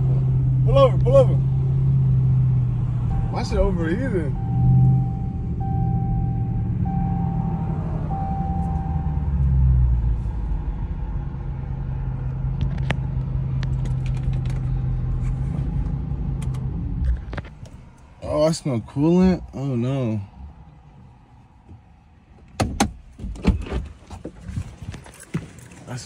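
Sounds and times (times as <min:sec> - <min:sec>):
car engine idling: 0:00.0 - 0:23.3
repeating chime tone: 0:03.1 - 0:09.2.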